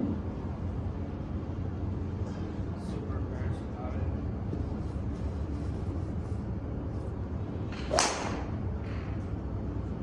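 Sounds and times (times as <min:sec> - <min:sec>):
golf club swoosh: 0:07.7 - 0:08.4
golf club striking ball: 0:07.7 - 0:08.5.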